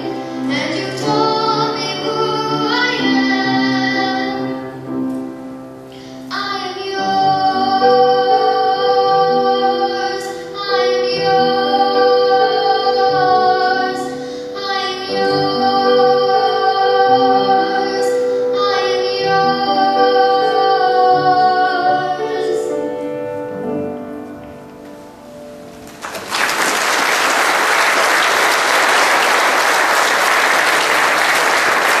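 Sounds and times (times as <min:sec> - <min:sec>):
girl singing: 0:00.0 - 0:05.3, 0:06.0 - 0:24.0
keyboard accompaniment: 0:00.0 - 0:32.0
congregation applauding: 0:25.8 - 0:32.0.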